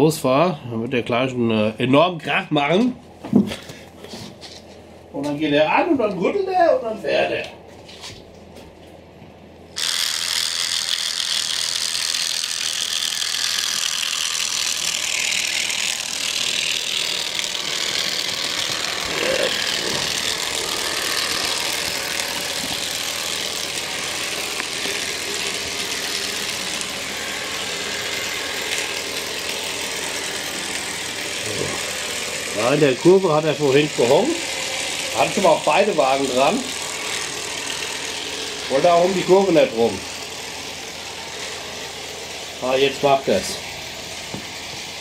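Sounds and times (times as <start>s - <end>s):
track-cleaning car vibrating on rails: 9.8s - 39.4s.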